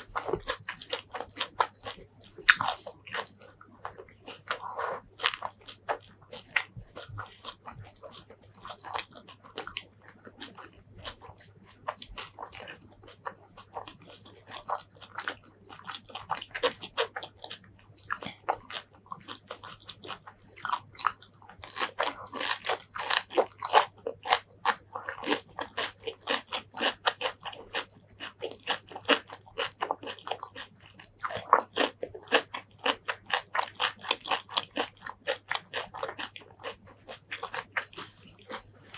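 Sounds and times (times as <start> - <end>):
crunchy chewing mouth sounds: 0.0 - 38.9.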